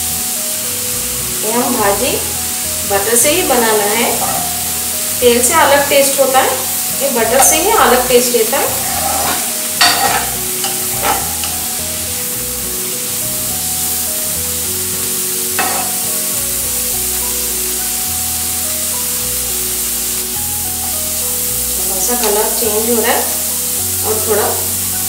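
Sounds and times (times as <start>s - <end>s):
onions sizzling in butter: 0.0s - 25.0s
steel spatula scraping wok: 2.8s - 12.2s, 15.4s - 16.4s.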